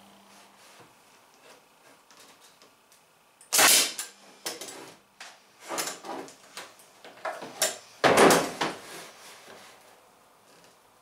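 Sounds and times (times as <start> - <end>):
pneumatic stapler shots: 3.5 - 4.6.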